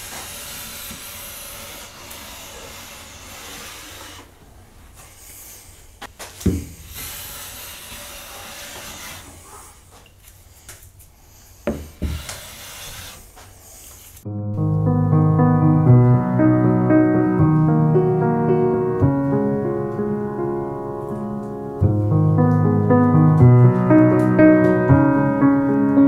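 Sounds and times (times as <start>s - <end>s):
hand plane shaving wood: 0.0s - 4.3s, 7.1s - 9.7s.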